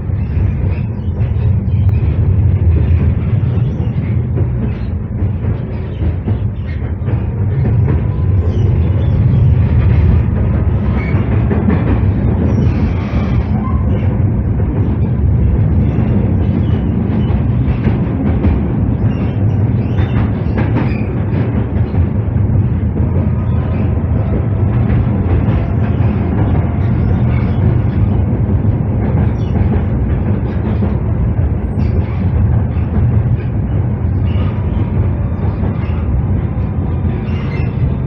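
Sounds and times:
tram wheels rumbling on rail: 0.0 - 38.0.

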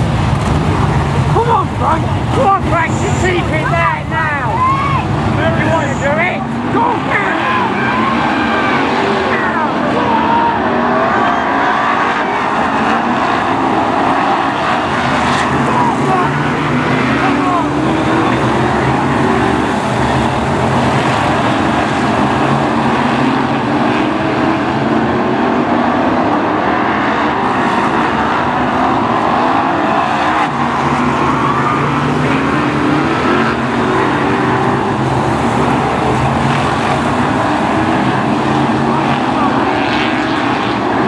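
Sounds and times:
race car engines passing: 0.0 - 41.0.

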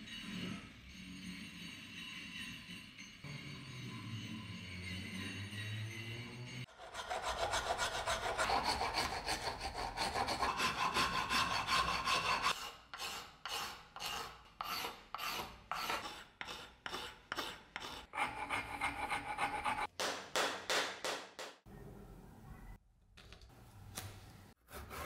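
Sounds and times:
hand rasp scraping wood: 6.7 - 19.9.

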